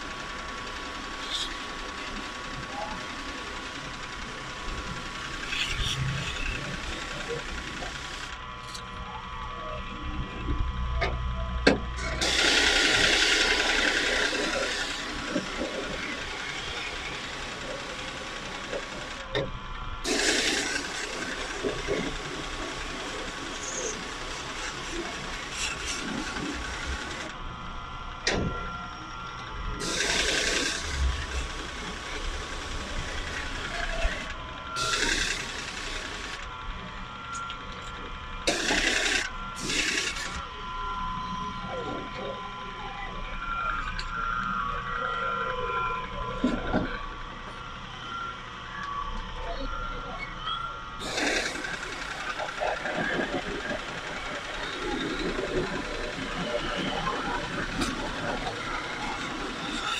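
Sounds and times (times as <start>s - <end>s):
mechanical whine: 0.0s - 59.9s
pressure washer spraying: 12.2s - 16.0s, 20.1s - 27.3s, 29.8s - 31.5s, 34.8s - 36.3s, 38.5s - 40.3s, 51.0s - 54.8s.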